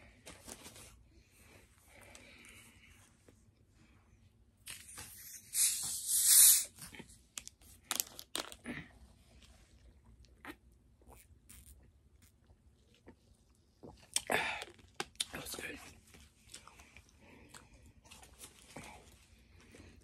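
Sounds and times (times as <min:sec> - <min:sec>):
carbonation hiss: 0:05.2 - 0:06.7.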